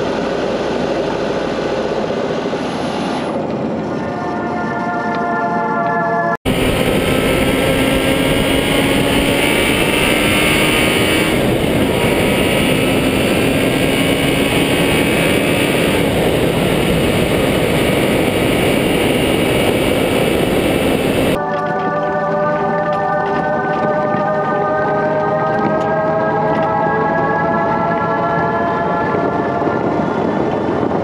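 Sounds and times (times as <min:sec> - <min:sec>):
vehicle engine: 0:06.5 - 0:31.0.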